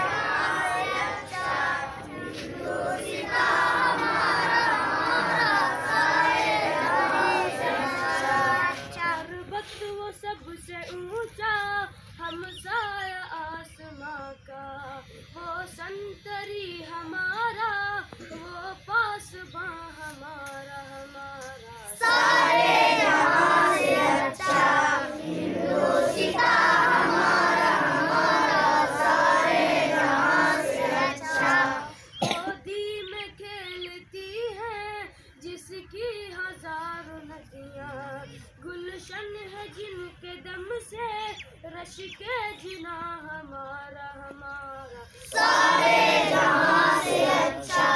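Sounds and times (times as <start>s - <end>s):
children singing unaccompanied: 0.0s - 9.4s, 21.8s - 32.7s, 45.1s - 47.9s.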